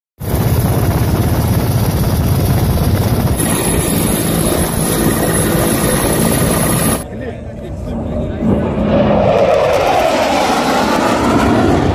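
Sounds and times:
helicopter rotors throbbing: 0.2 - 8.7
thin high whine: 3.4 - 7.0.

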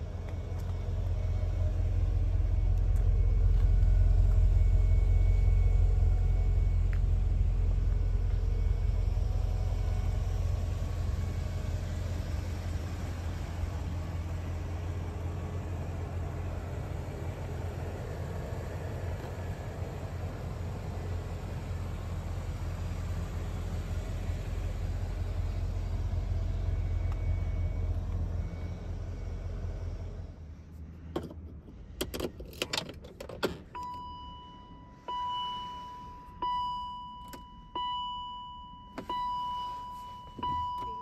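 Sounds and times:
car engine idling: 0.0 - 41.0
dashboard warning chime: 33.8 - 41.0.

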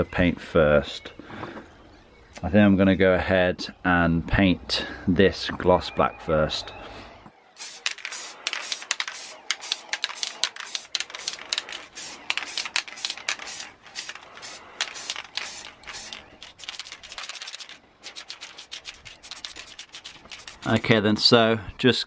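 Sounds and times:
spray paint can bursts: 7.6 - 20.8.

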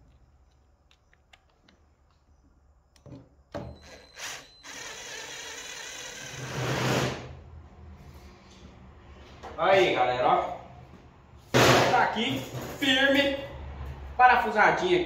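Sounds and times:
drill driving screw into steel: 3.7 - 7.3.

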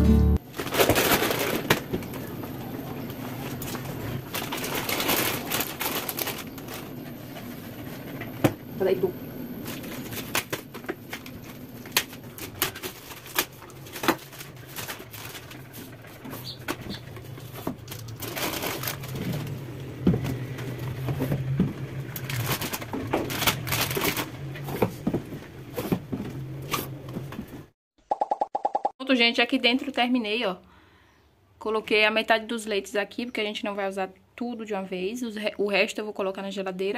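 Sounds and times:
plastic packets crinkling: 0.5 - 2.4, 3.4 - 7.3, 9.6 - 19.7, 22.1 - 24.6.

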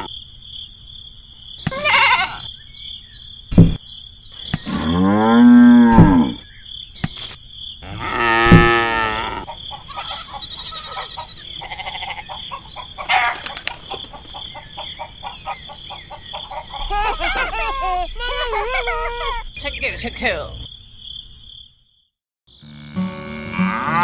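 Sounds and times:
cow mooing: 4.7 - 6.4, 7.8 - 9.5, 22.6 - 24.0
animal calls: 7.9 - 19.6.

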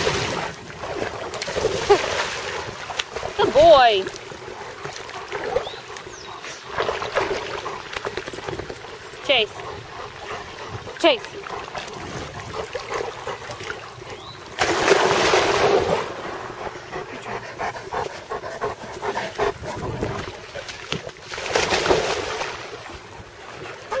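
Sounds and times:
dogs splashing in water: 0.0 - 24.0.

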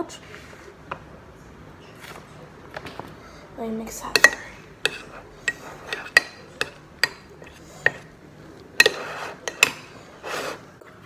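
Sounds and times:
spoon clinking on ceramic bowl: 4.1 - 8.1, 8.8 - 9.9
spoon scraping bowl: 4.1 - 8.2, 8.8 - 10.7.

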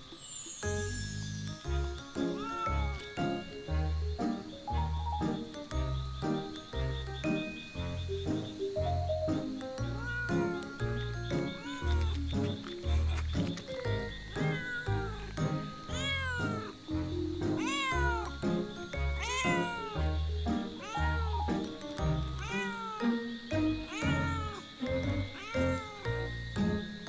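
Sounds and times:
background music with steady beat: 1.2 - 27.0
cat meowing: 2.3 - 3.4, 9.8 - 13.2, 14.3 - 16.9, 17.6 - 18.4, 19.1 - 21.6, 22.3 - 26.2.

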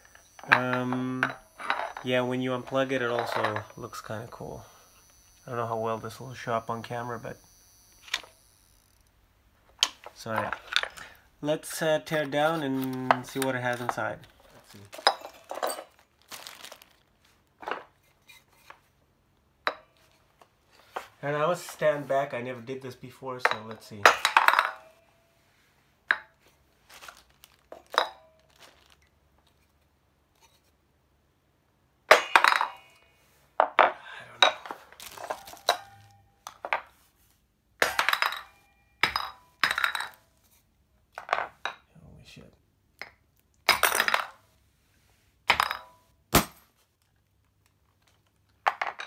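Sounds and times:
plastic bag crinkling: 14.4 - 17.6, 26.8 - 29.2, 34.7 - 36.1
metal tool clinking on glass: 14.9 - 15.9, 34.4 - 36.3.

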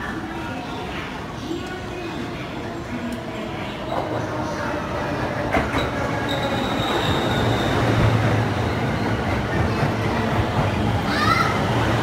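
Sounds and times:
train clacks: 5.1 - 12.0.

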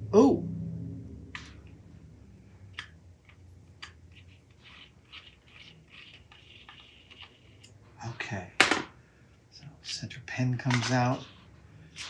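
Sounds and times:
low steady hum: 0.0 - 12.0
small parts clicking and scraping: 2.8 - 7.8.

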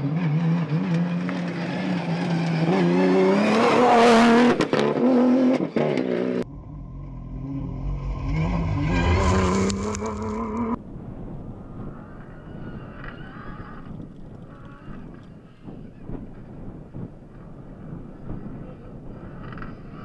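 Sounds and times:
rally car engine revving: 0.0 - 10.8
low engine rumble: 6.4 - 10.9.

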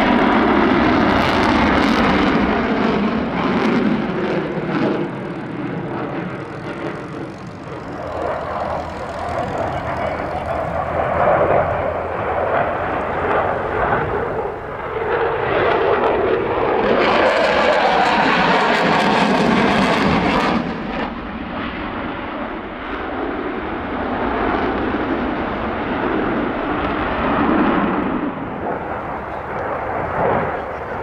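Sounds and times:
jet engine roar: 0.0 - 31.0.

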